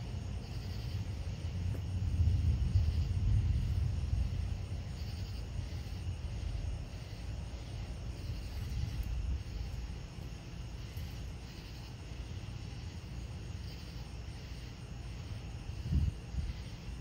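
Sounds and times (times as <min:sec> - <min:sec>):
insects chirping: 0:00.0 - 0:17.0
steady low rumble: 0:00.0 - 0:17.0.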